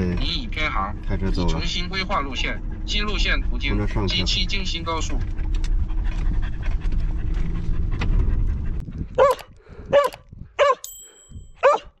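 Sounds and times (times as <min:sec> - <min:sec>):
low rumble inside van: 0:00.0 - 0:10.7
dog panting calls: 0:01.6 - 0:10.8.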